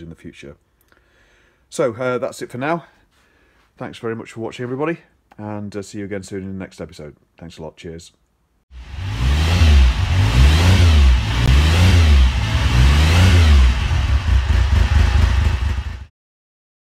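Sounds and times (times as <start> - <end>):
motorcycle engine revving: 8.7 - 16.1.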